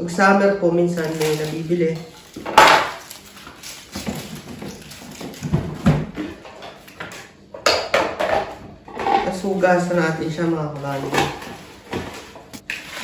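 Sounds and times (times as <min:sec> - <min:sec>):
plastic salad spinner clattering: 0:00.9 - 0:06.2.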